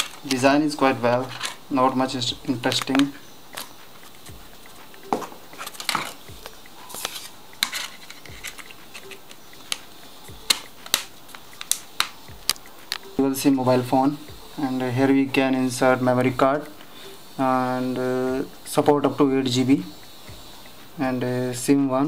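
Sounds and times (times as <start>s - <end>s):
plastic clicks and taps: 10.5s - 13.1s.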